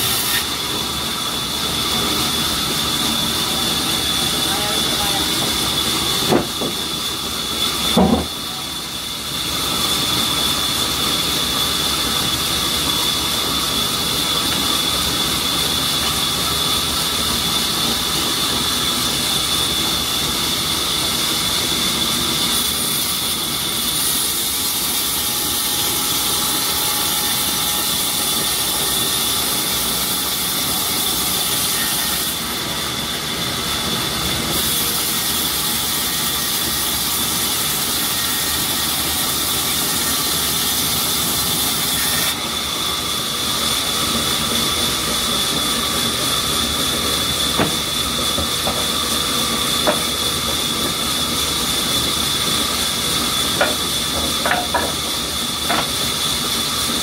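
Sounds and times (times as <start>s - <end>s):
band saw cutting log: 0.0s - 57.0s.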